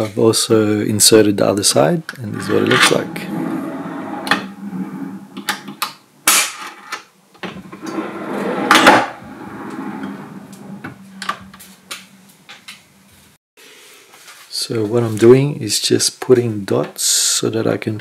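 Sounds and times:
drawer slides rolling and scraping: 0:02.2 - 0:05.8, 0:07.4 - 0:11.9.

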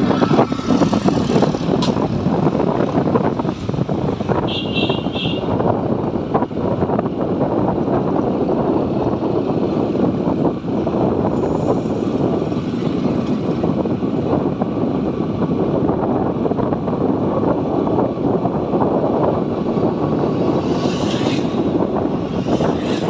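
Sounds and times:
motorcycle engine: 0:00.0 - 0:05.6
wind rushing over microphone: 0:00.0 - 0:23.0.

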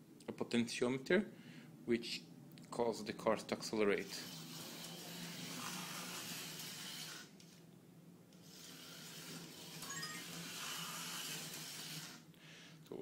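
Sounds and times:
slot car motors whirring: 0:04.0 - 0:07.4, 0:08.3 - 0:12.3.

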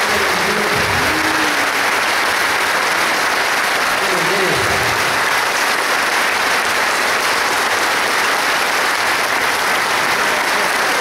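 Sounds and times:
crowd applauding: 0:00.0 - 0:11.0.

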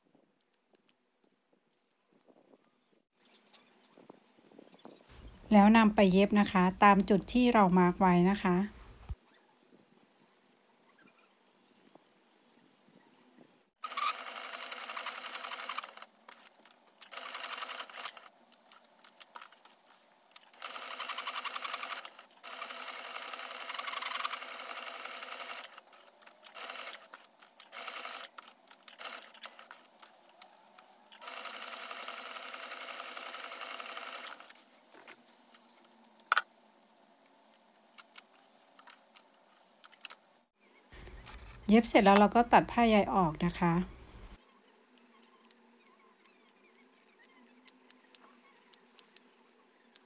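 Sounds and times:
electric sewing machine stitching: 0:13.8 - 0:16.1, 0:17.0 - 0:18.3, 0:20.6 - 0:29.8, 0:31.1 - 0:34.5.

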